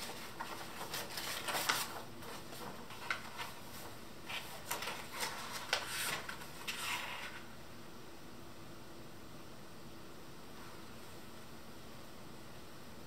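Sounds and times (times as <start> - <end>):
paper rustling and crinkling: 0.0 - 7.5.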